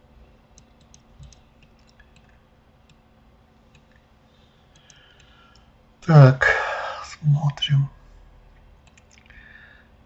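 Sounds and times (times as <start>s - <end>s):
faint steady hum: 0.0s - 10.0s
computer mouse and keyboard clicks: 0.5s - 3.0s, 4.7s - 5.7s, 8.8s - 9.3s.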